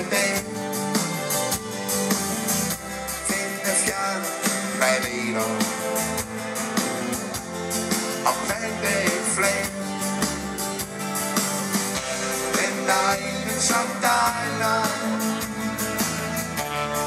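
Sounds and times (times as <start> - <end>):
man singing: 0.0 - 1.0, 3.1 - 6.3, 8.2 - 10.0, 12.2 - 15.5
live rock band playing: 0.0 - 17.0.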